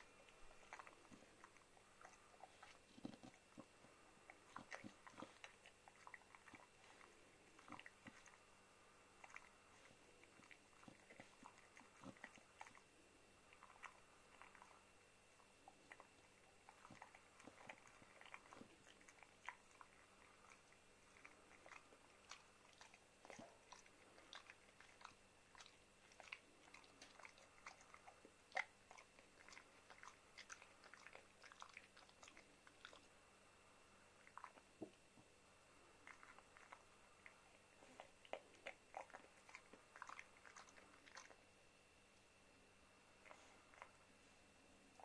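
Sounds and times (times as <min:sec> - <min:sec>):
dog gnawing chew stick: 0:00.1 - 0:08.4, 0:09.2 - 0:12.8, 0:15.6 - 0:33.1, 0:36.0 - 0:41.4.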